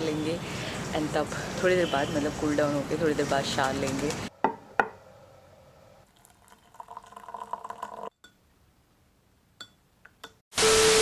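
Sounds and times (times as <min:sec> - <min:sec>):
water poured into mug: 0:06.1 - 0:08.1.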